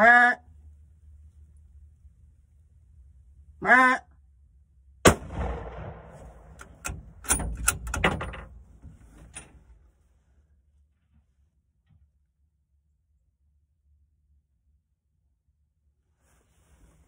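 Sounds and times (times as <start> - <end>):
short vocal call: 3.6 - 4.1
rifle shot: 5.0 - 7.5
sharp clicks and knocks: 6.5 - 9.7.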